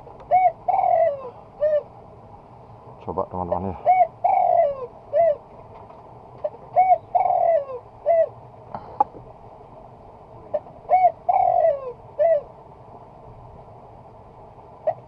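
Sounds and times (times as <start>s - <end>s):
dove cooing: 0.0s - 1.9s, 3.7s - 5.5s, 6.4s - 8.4s, 10.5s - 12.6s.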